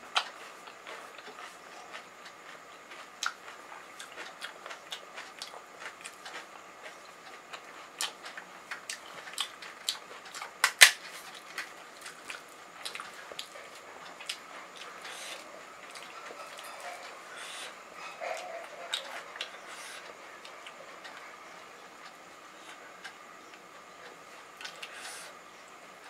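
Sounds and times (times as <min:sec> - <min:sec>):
chewing crisp fried shells: 0:00.1 - 0:26.0.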